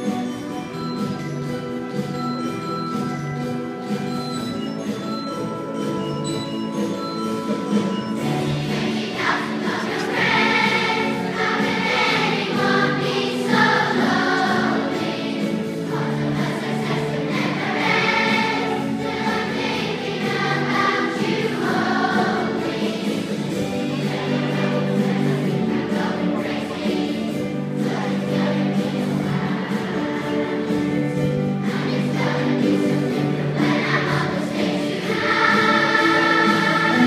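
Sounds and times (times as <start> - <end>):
choir singing with accompaniment: 7.5 - 37.0.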